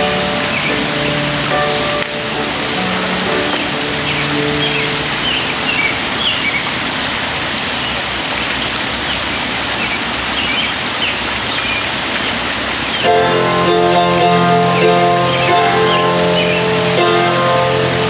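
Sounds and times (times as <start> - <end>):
music: 0.0 - 5.5, 13.1 - 18.0
steady hiss: 0.0 - 18.0
birds chirping: 2.6 - 6.8, 7.7 - 18.0.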